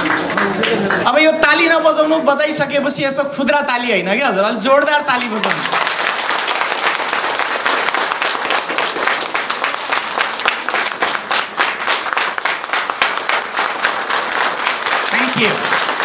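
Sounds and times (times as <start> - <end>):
audience applauding: 0.0 - 1.7, 5.1 - 16.0.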